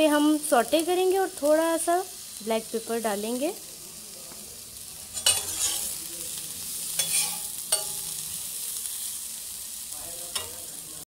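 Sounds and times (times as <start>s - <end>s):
vegetables sizzling in a pan: 0.0s - 11.0s
stirring strokes scraping a pan: 4.6s - 9.4s.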